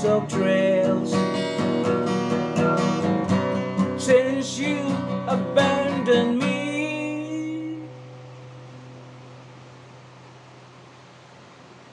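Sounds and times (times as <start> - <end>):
acoustic guitar strumming: 0.0 - 10.3.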